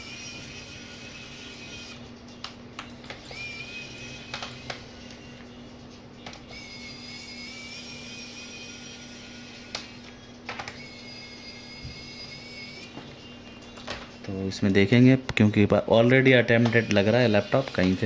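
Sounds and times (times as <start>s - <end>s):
electric screwdriver whining: 0.0s - 2.0s, 3.1s - 5.4s, 6.4s - 12.9s, 16.6s - 18.0s.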